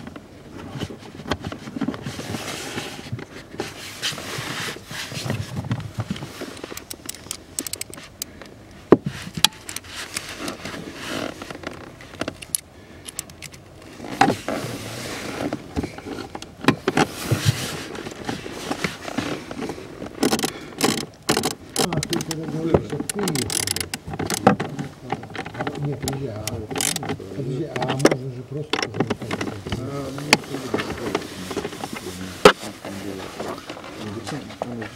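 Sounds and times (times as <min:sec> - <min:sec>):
plastic scraping and rustling: 0:00.0 - 0:08.4, 0:09.0 - 0:12.7, 0:13.3 - 0:34.9
plastic parts clicking: 0:06.6 - 0:08.5, 0:12.2 - 0:13.6, 0:20.1 - 0:27.2.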